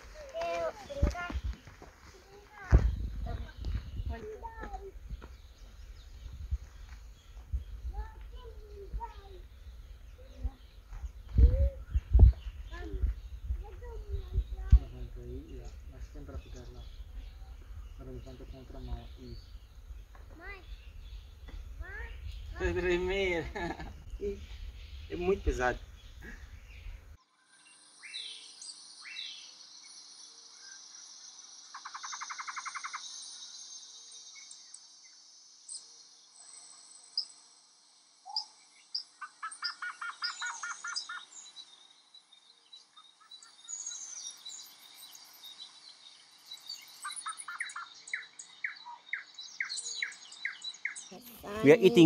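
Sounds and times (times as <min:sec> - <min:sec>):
bird chirps and calls: 0:00.0 - 0:37.5, 0:38.2 - 0:52.0
high insect drone: 0:14.9 - 0:48.5, 0:51.1 - 0:52.0
rapid bird trilling: 0:31.7 - 0:33.1.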